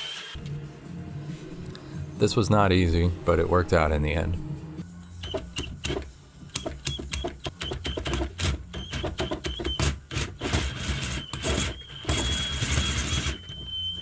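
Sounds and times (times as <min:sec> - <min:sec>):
drill motor whining: 0:06.6 - 0:14.0.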